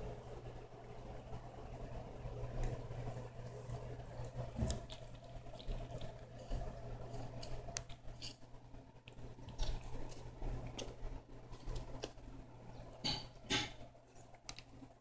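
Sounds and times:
steady low hum: 0:00.0 - 0:15.0
kitten chewing grass: 0:00.2 - 0:15.0.

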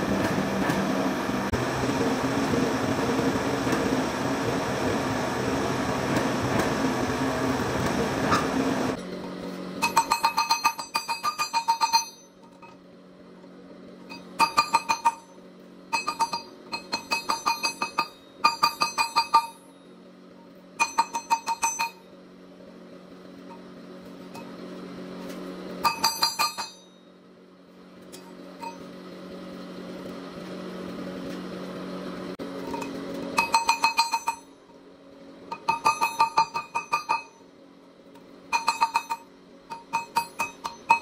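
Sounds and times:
hammer ringing on anvil: 0:09.8 - 0:12.8, 0:14.1 - 0:19.9, 0:20.8 - 0:22.1, 0:25.8 - 0:27.1, 0:28.2 - 0:28.9, 0:32.7 - 0:34.6, 0:35.5 - 0:37.5, 0:38.5 - 0:41.0.

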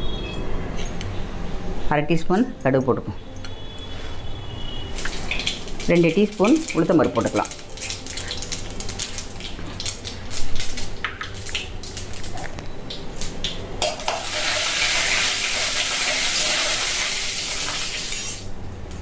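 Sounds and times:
seeds sizzling in oil: 0:04.8 - 0:12.3, 0:13.8 - 0:18.2.

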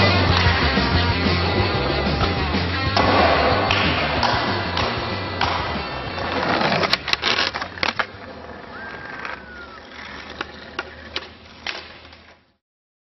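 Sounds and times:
skateboard wheels rolling on concrete: 0:00.0 - 0:12.6
skateboard clacks and impacts: 0:02.9 - 0:08.2.

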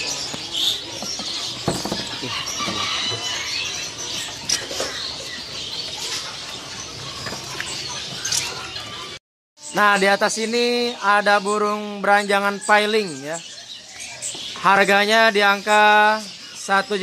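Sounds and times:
songbirds chirping: 0:00.0 - 0:17.0
sharp knocks: 0:01.0 - 0:02.9.

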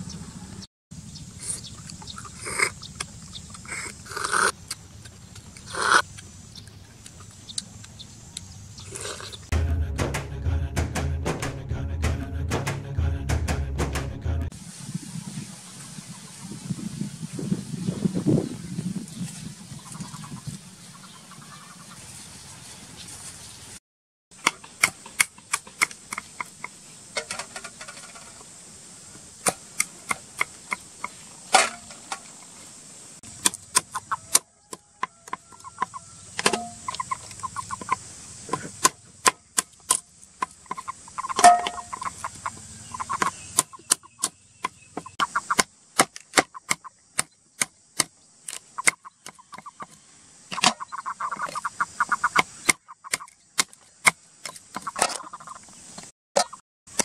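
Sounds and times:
chickens clucking: 0:01.4 - 0:09.5, 0:19.7 - 0:22.7, 0:33.4 - 0:39.3, 0:40.4 - 0:45.7, 0:48.7 - 0:53.4, 0:54.4 - 0:56.6.

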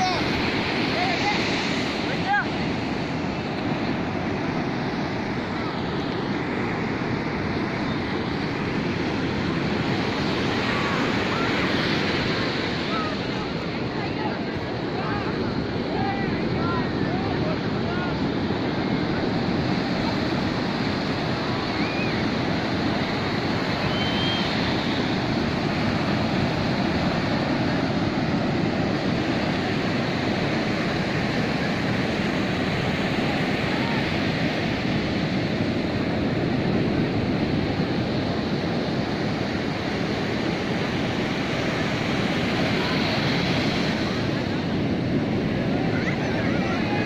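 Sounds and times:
sea surf breaking on beach: 0:00.0 - 0:47.0.

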